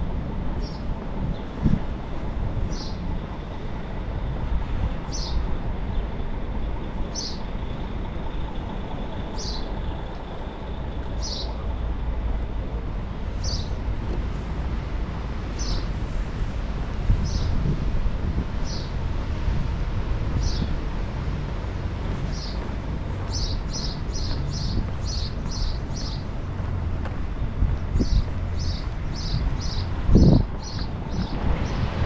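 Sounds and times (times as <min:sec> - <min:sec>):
low outdoor rumble: 0:00.0 - 0:32.0
bird chirping: 0:09.2 - 0:10.0, 0:10.6 - 0:11.7, 0:13.3 - 0:13.8, 0:22.2 - 0:26.6, 0:27.8 - 0:31.8.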